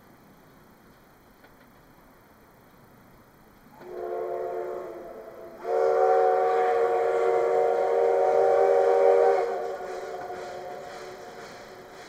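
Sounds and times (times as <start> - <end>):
steam locomotive whistle blasts: 3.8 - 12.0.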